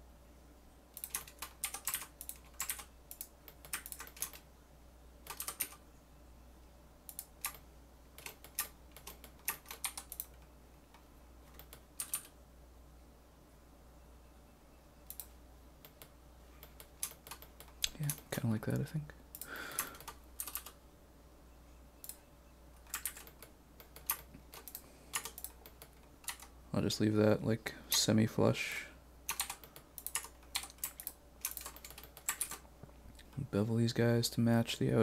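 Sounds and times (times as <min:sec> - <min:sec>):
room fan humming: 0:00.0 - 0:35.0
keyboard keys clicking: 0:01.0 - 0:04.4, 0:05.2 - 0:05.8, 0:08.2 - 0:10.5, 0:11.5 - 0:12.3, 0:22.9 - 0:26.5, 0:29.3 - 0:32.6.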